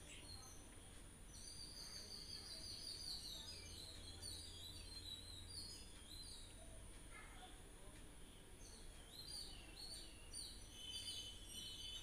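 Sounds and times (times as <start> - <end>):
birds chirping: 8.3 - 12.0.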